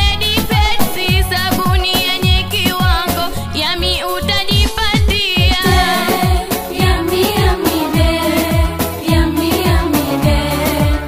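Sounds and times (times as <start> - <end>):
backing track: 0.0 - 11.0
women singing into microphones: 0.0 - 11.0
deep drum hits: 4.5 - 8.7.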